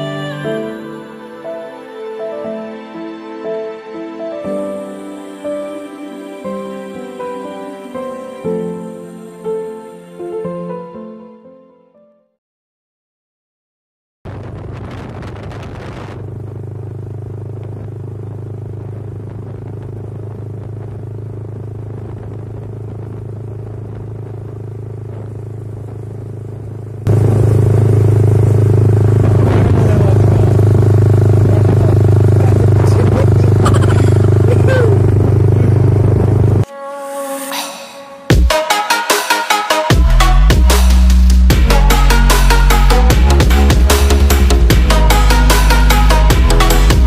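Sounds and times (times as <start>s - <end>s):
motorcycle engine droning: 14.3s - 36.7s.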